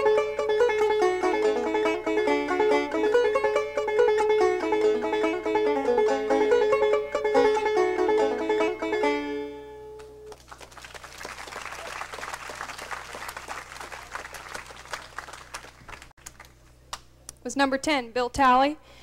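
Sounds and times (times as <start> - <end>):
banjo tune: 0.0 - 10.3
audience applause: 10.3 - 16.5.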